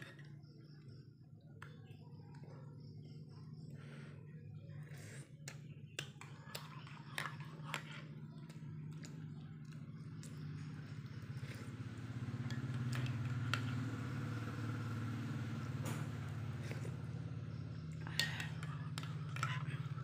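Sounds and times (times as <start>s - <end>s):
steady low hum: 0.0s - 20.0s
spoon stirring in mug: 5.0s - 9.4s, 12.4s - 13.8s, 17.9s - 20.0s.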